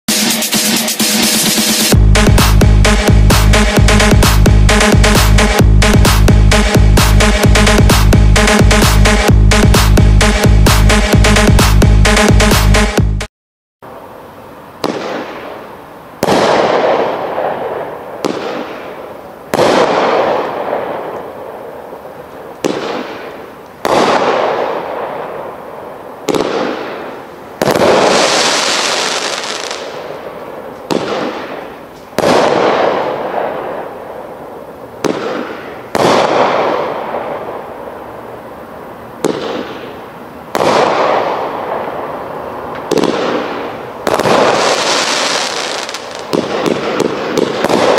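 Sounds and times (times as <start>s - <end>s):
firework crackle: 14.7s - 38.1s, 39.2s - 47.9s
firework bangs: 14.8s - 38.0s, 39.2s - 47.9s.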